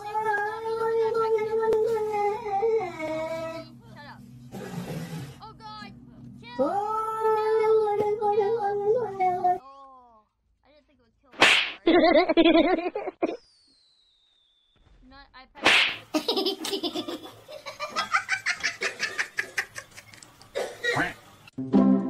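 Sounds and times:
laughter: 0:11.8 - 0:13.4, 0:16.1 - 0:20.2
long falling whistle: 0:13.4 - 0:14.8.

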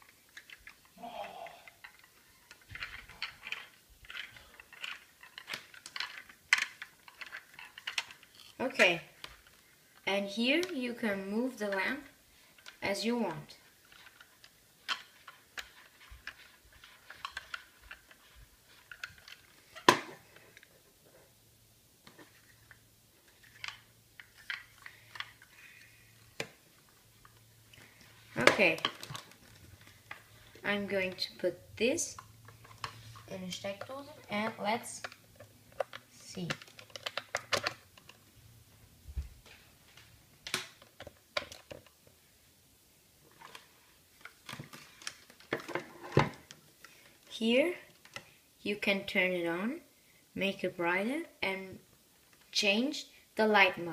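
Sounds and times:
sharp clicks and light knocks: 0:33.6 - 0:38.2.

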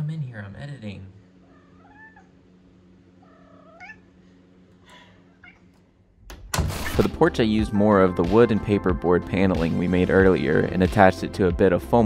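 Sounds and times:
faint steady hum: 0:00.0 - 0:12.0
cat meowing: 0:01.4 - 0:02.4, 0:03.2 - 0:04.1, 0:05.3 - 0:05.8.

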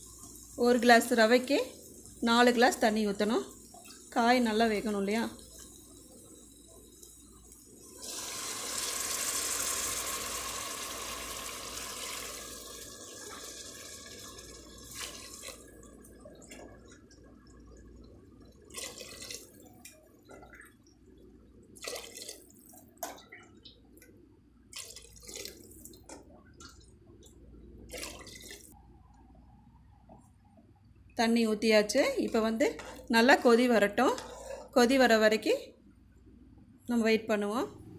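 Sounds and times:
water pouring into a pot: 0:00.0 - 0:17.8, 0:18.4 - 0:20.6, 0:21.8 - 0:23.3, 0:24.7 - 0:26.8, 0:27.9 - 0:28.8.

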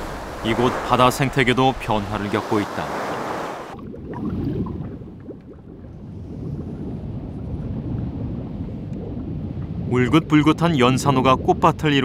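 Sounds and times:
muffled low water rumble: 0:00.0 - 0:02.2, 0:03.7 - 0:12.0
surf hiss: 0:00.0 - 0:03.8.

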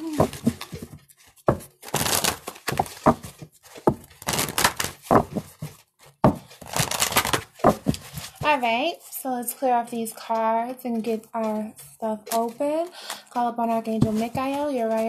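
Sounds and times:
cards slapping together: 0:00.0 - 0:08.4
cards being shuffled: 0:00.0 - 0:08.5.

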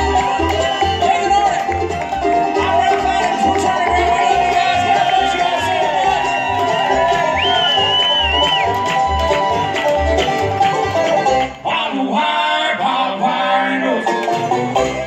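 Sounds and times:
bass beat: 0:00.0 - 0:11.6
banjo: 0:00.0 - 0:15.0
bluegrass band playing: 0:00.0 - 0:15.0.

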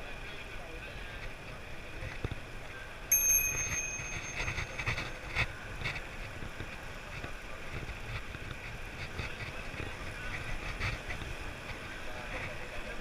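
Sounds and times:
wind and road noise: 0:00.0 - 0:13.0
bicycle bell ringing: 0:03.1 - 0:05.5.

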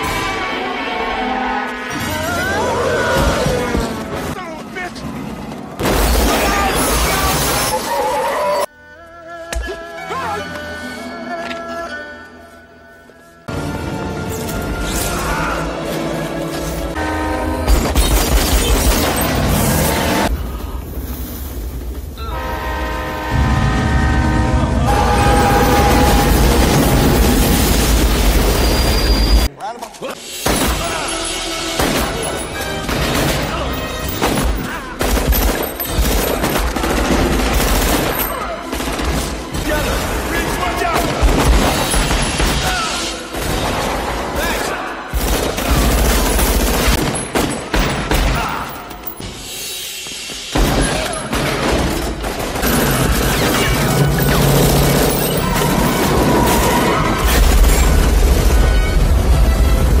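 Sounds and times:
film score music: 0:08.0 - 0:49.0, 0:51.5 - 1:00.0
gunshots: 0:17.7 - 0:20.3, 0:30.4 - 0:49.0, 0:50.6 - 0:59.0
gunfire: 0:31.8 - 0:48.8.

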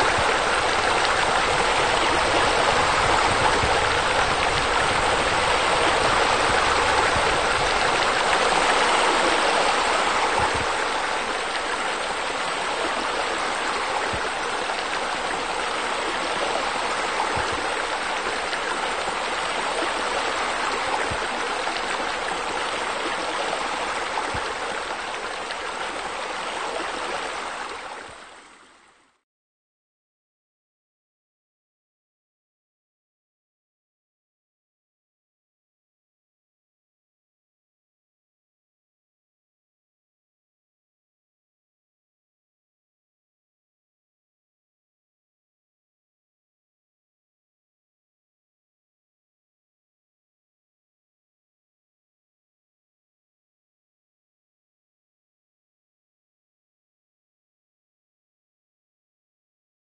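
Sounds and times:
water rushing and splashing: 0:00.0 - 0:29.1.

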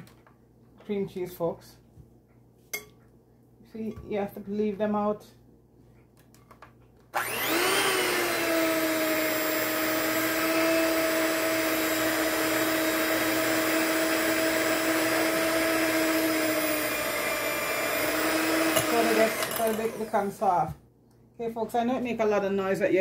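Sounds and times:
electric hand mixer whining: 0:07.2 - 0:20.4.

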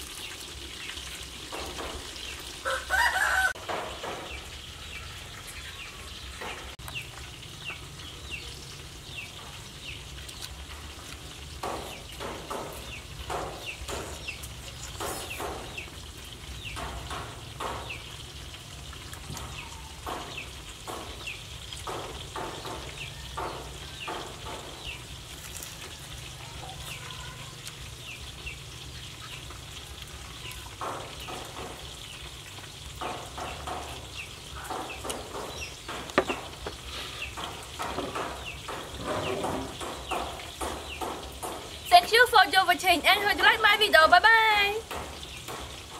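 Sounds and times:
crunching and chewing: 0:10.2 - 0:12.3, 0:24.5 - 0:28.0.

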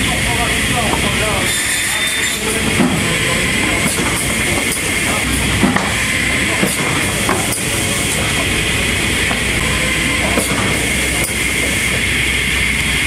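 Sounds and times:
sawmill machinery whining hiss: 0:00.0 - 0:13.0.

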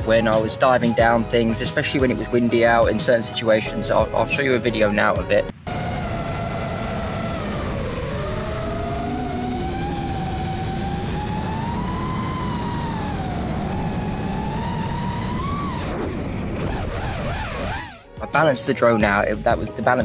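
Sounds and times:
drone motors whining: 0:05.5 - 0:18.2
wind rushing past camera: 0:05.5 - 0:18.2.

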